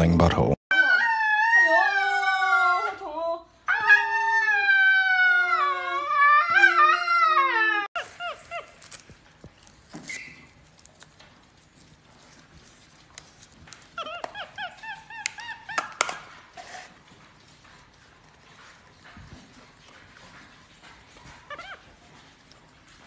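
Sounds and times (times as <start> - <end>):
husky howling: 0.7 - 8.6
faint short squeaks: 10.0 - 10.6.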